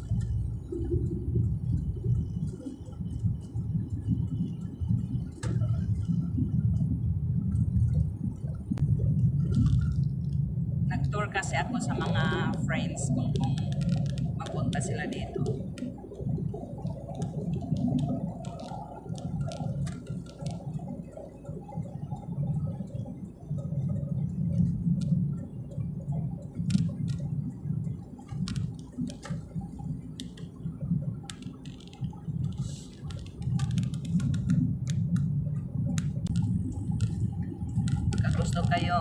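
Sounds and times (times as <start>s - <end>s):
car driving rumble: 0.0s - 39.0s
light clicks and rattles: 28.0s - 39.0s.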